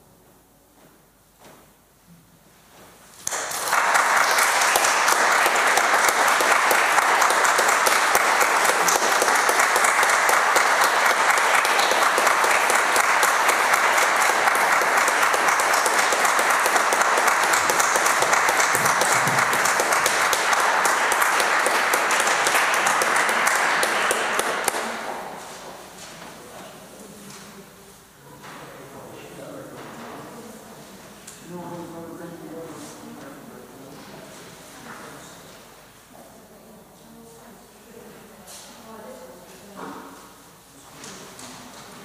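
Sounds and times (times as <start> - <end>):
audience applauding: 3.2 - 25.6.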